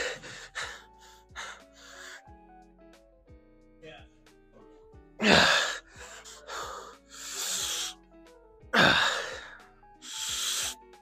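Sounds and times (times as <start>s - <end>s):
man breathing hard: 0.0s - 2.4s, 5.2s - 8.0s, 8.8s - 10.8s
background music: 0.0s - 11.0s.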